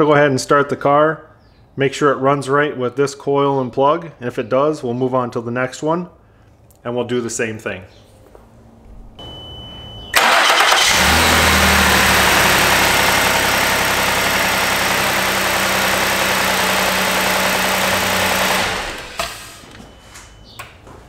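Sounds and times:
car engine running: 10.2 - 20.0.

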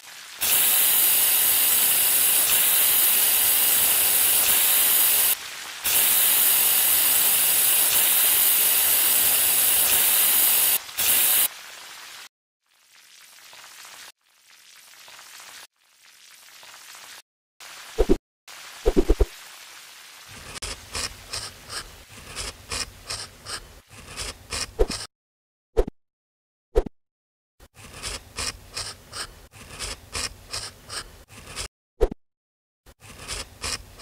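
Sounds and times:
aerosol spray can hissing: 0.4 - 11.5.

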